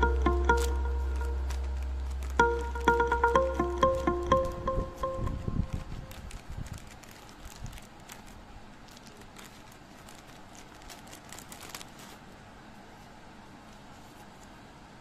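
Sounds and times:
plastic bag crinkling: 5.7s - 12.4s.

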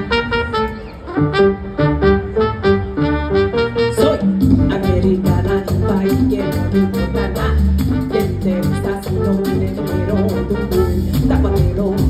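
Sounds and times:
live latin band playing: 0.0s - 12.0s
trumpet: 0.0s - 12.0s
congas: 3.9s - 12.0s.

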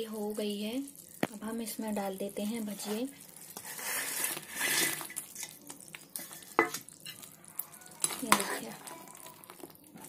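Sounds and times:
metal spoon scraping a pot: 3.6s - 5.6s, 6.2s - 10.0s.

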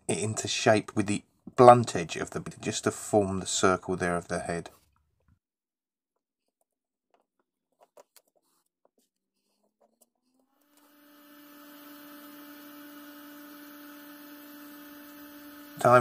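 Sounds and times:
masking tape taps and rustles: 6.4s - 10.9s
steady electrical hum: 10.8s - 16.0s.

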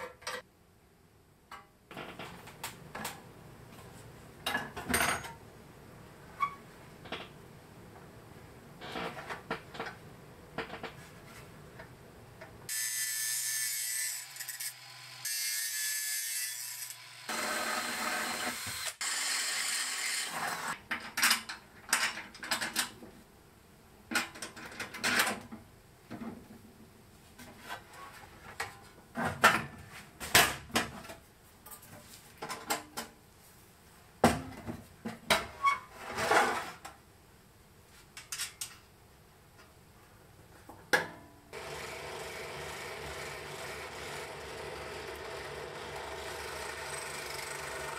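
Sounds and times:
power tool running: 16.8s - 20.7s, 41.6s - 47.9s.

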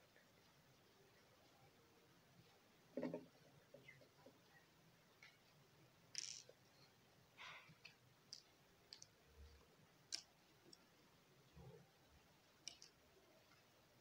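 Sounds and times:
faint clicks: 12.6s - 13.7s.

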